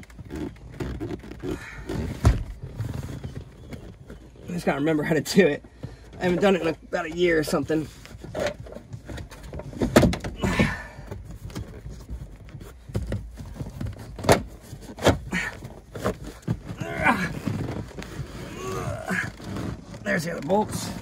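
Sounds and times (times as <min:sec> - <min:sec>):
knocks and clunks of tools: 0:08.3 - 0:10.8.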